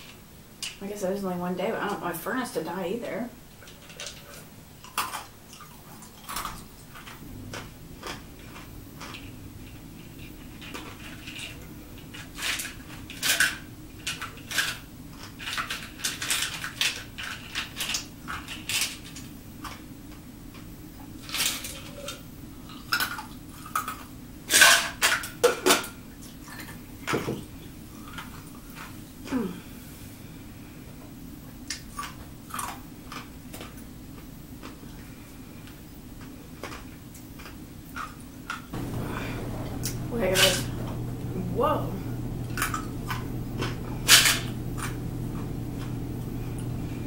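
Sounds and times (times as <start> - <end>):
ice being chewed: 3.6 - 25.2, 27.5 - 29.0, 31.6 - 41.3, 42.2 - 47.0.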